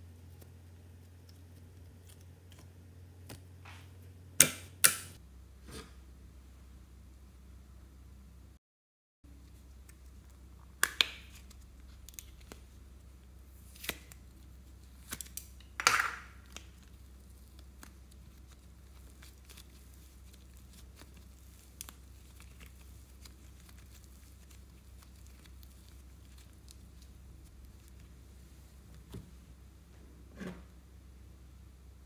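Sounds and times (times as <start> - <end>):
slime squishing: 9.3 - 15.8, 16.4 - 29.1.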